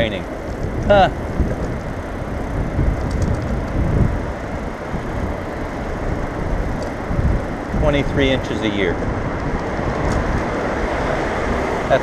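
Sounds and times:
bicycle road noise on wet street: 0.0s - 12.0s
wind rumble on microphone: 0.0s - 12.0s.

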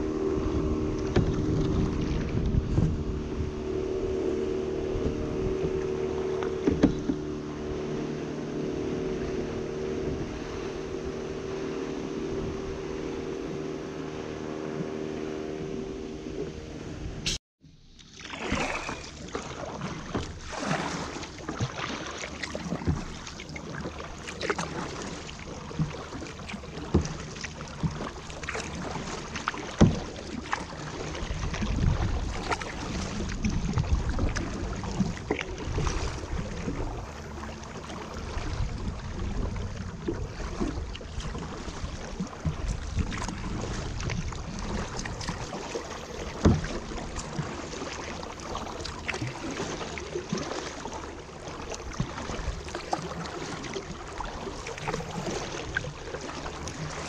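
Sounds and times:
wind rumble on microphone: 0.0s - 17.4s, 24.6s - 49.5s
paddle splashes: 0.0s - 57.0s
water lapping at hull: 0.0s - 57.0s
small splashes and knocks: 0.7s - 3.1s, 4.8s - 7.7s, 17.9s - 57.0s.

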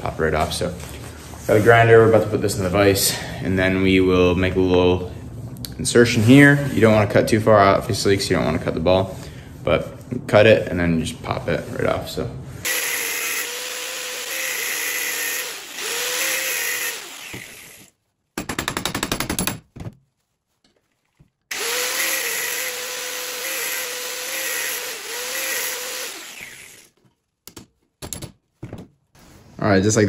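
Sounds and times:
angle grinder cutting steel: 12.7s - 17.9s, 21.5s - 26.9s.

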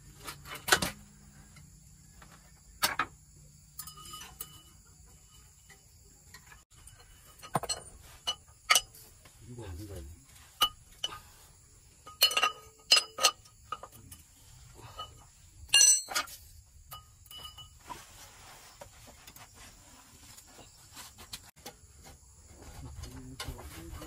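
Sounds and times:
metal tools clinking: 3.7s - 9.2s, 9.9s - 18.0s.

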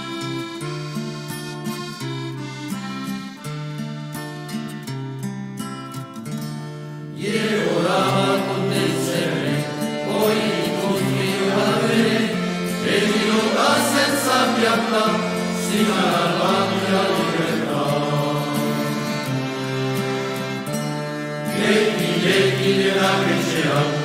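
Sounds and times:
chanted singing over held notes: 7.2s - 24.0s.

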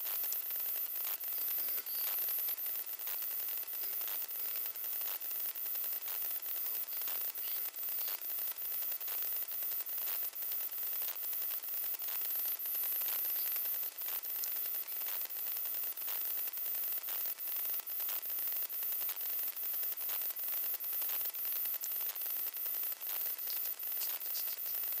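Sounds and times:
electronic hiss and static: 0.0s - 25.0s
faint regular ticks: 0.0s - 25.0s.

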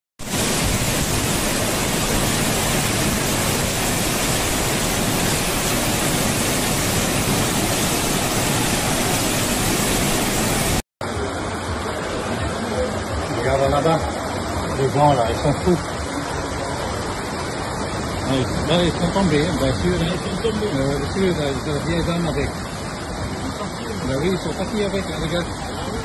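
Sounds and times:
strong gusting wind: 0.2s - 10.8s
heavy rain: 0.2s - 26.0s.

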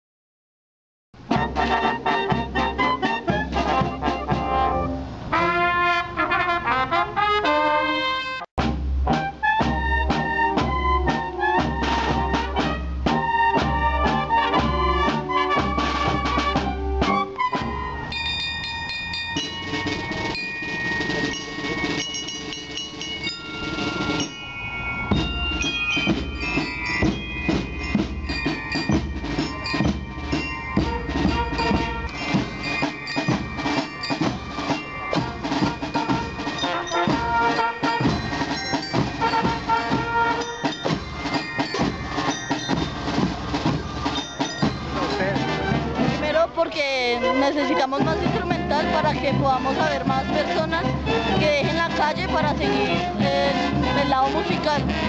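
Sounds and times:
snare and bass drums march beat: 1.2s - 7.4s, 8.0s - 18.0s, 19.4s - 24.4s, 25.0s - 55.0s
brass band playing: 1.2s - 18.4s, 19.4s - 55.0s
bell lyres ringing: 17.4s - 55.0s.

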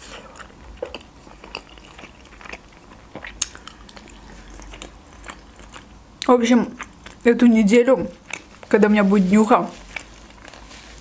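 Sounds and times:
chewing mouth clicks and smacks: 0.3s - 5.9s.

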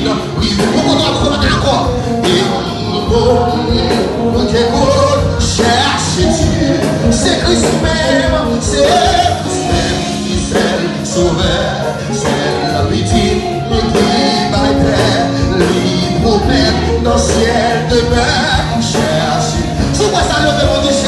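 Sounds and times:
keyboard and band accompaniment: 0.0s - 21.0s
man singing into a microphone: 0.0s - 21.0s.

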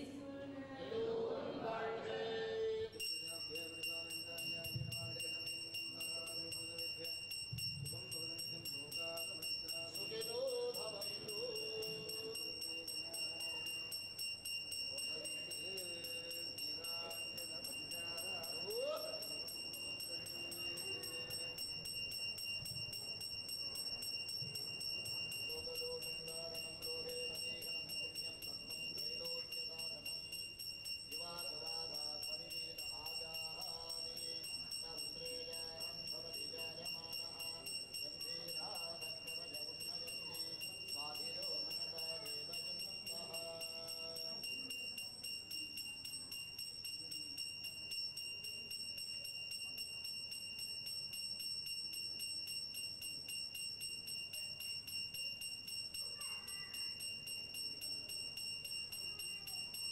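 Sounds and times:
hand bell ringing rapidly: 3.0s - 59.9s.

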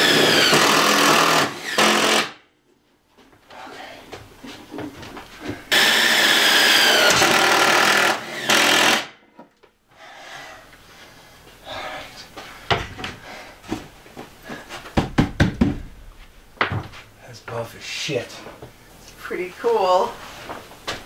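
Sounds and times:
cordless drill driving screw: 0.0s - 2.3s, 5.7s - 9.1s.

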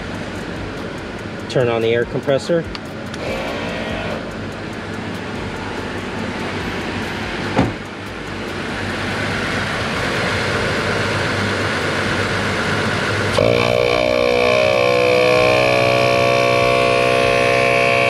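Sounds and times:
air compressor running: 0.0s - 18.0s
high-pitched whine: 0.0s - 18.0s
knock: 7.6s - 7.8s.

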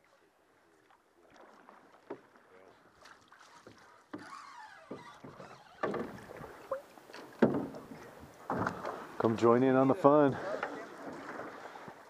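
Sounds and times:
water slapping boat: 0.0s - 12.0s
hull knocks and creaks: 3.6s - 9.4s.

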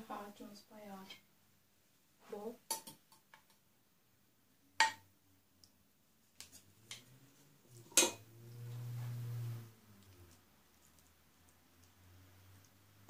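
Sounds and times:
utensils knocking on pot and dish: 4.8s - 5.0s, 7.9s - 8.2s
low hum: 7.0s - 10.4s.

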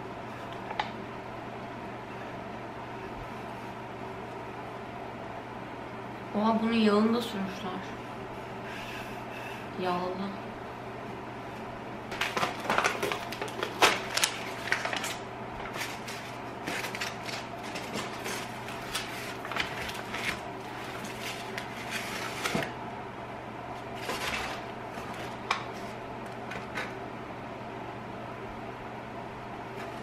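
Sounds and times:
paper wrapping rustling and crackling: 12.1s - 22.8s, 23.8s - 26.9s.

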